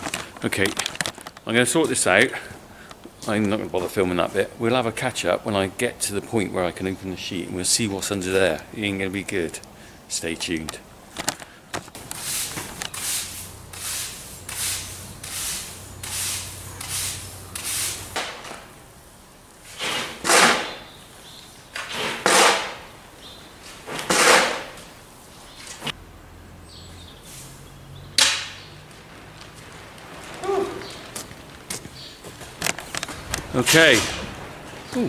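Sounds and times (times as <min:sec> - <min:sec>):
broom scraping: 0:12.0 - 0:18.5, 0:19.6 - 0:20.9, 0:23.6 - 0:26.0, 0:27.2 - 0:27.6
broom sweeping concrete floor: 0:12.0 - 0:18.6, 0:19.6 - 0:21.0, 0:23.6 - 0:26.0, 0:27.2 - 0:27.6.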